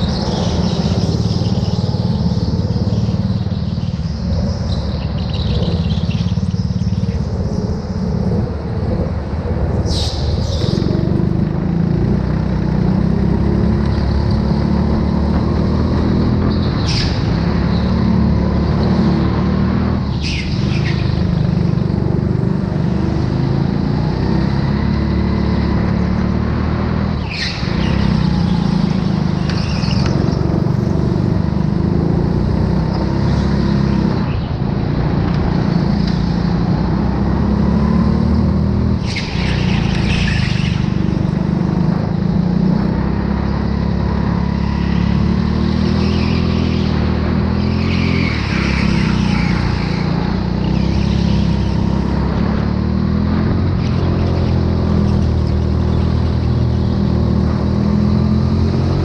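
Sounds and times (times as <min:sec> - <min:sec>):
go-kart rumbling: 0:00.0 - 0:59.0
tyre squeals: 0:27.1 - 0:30.7, 0:39.0 - 0:41.2, 0:44.5 - 0:52.2.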